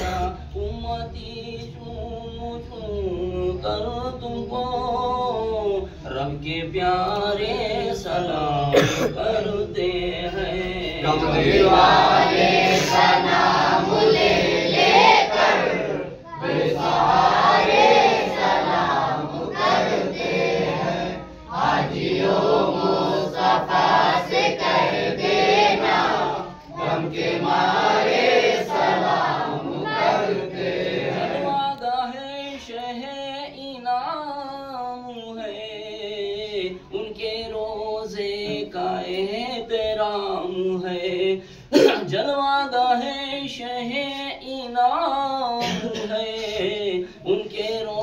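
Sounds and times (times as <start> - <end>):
group of men singing: 0.0 - 48.0
man singing alone: 31.4 - 48.0.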